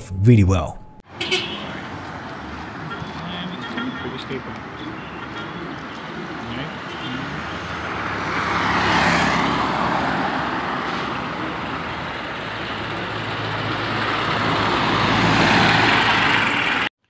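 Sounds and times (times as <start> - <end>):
vehicles passing on street: 0.0 - 16.9.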